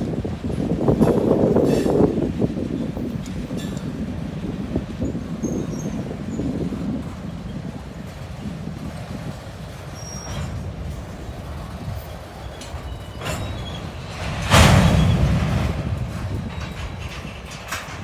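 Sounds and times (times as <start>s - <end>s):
train wheels rumbling on rail: 0.0s - 18.0s
wheel squeals and knocks: 5.0s - 7.6s, 9.8s - 11.0s, 11.9s - 18.0s.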